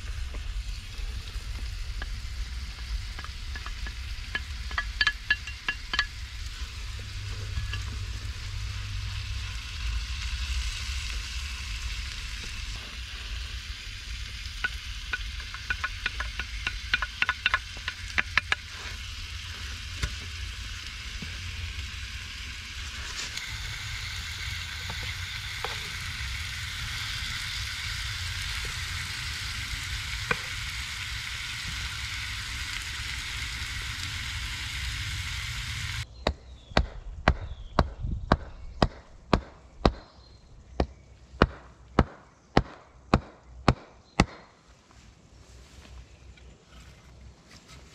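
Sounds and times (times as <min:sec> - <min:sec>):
food sizzling in a pan: 0:00.0 - 0:36.0
fire clicks and crackles: 0:00.0 - 0:36.1.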